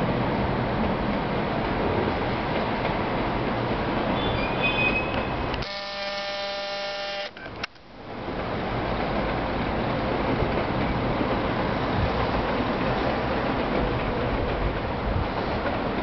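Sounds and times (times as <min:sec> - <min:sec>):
zoom motor buzzing whine: 0:05.6 - 0:07.4
zoom motor click: 0:05.6 - 0:07.4
wind on microphone: 0:10.5 - 0:16.0.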